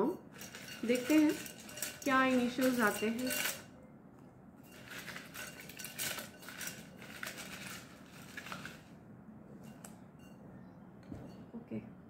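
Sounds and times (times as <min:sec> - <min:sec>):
paper slips rustling in a jar: 0:00.3 - 0:03.7, 0:04.7 - 0:09.0.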